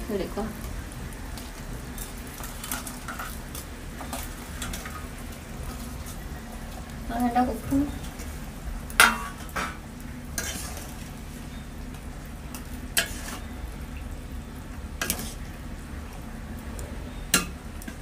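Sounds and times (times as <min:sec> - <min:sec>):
curry sizzling: 0:00.0 - 0:18.0
metal spatula scraping a pan: 0:10.4 - 0:11.0, 0:12.5 - 0:13.5, 0:15.0 - 0:15.4.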